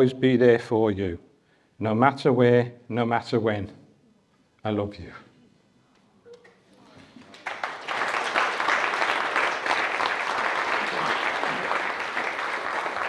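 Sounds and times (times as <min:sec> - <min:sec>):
guests applauding: 0:07.0 - 0:13.0.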